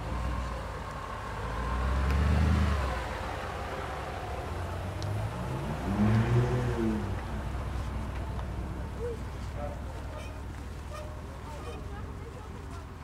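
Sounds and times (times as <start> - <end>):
car engine revving: 0.0 - 9.0.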